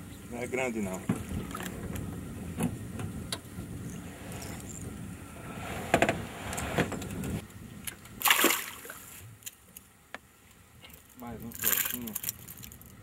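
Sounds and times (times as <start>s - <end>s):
low rumbling: 0.0s - 8.3s
knocks from boat and tackle: 1.0s - 1.8s
fish splashing at surface: 8.2s - 9.2s.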